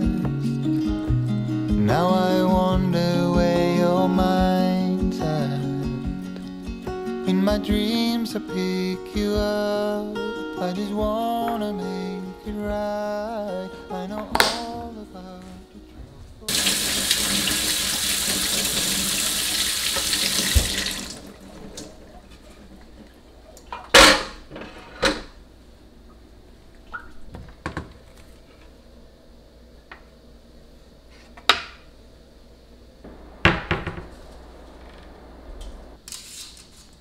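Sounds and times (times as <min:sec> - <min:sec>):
tap water running: 0:16.5 - 0:24.0.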